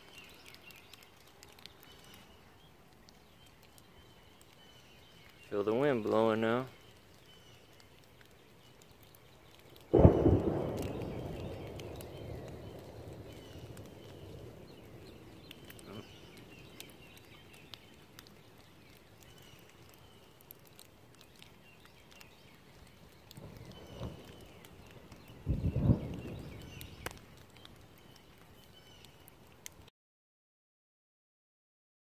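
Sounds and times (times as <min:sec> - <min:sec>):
scattered ticks: 0:00.0 - 0:02.3, 0:06.8 - 0:29.9
thunder rumbling: 0:09.8 - 0:16.9, 0:23.3 - 0:27.2.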